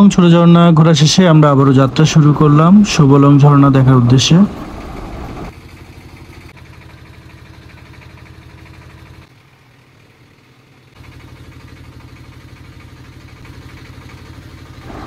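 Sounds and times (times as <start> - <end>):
boat engine chugging: 0.0 - 15.0.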